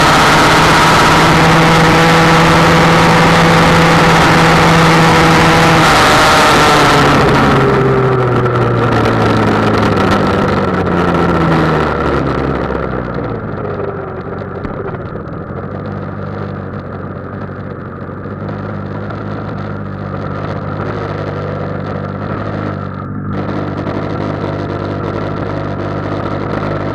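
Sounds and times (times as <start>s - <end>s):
scooter engine winding down and idling: 7.0s - 26.9s.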